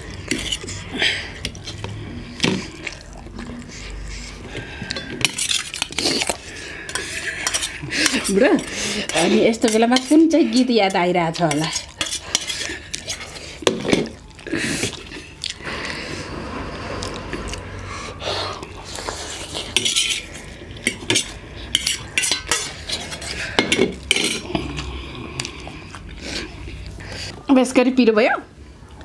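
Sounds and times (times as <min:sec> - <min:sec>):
cutlery clinking on steel plate: 0:19.8 - 0:24.5.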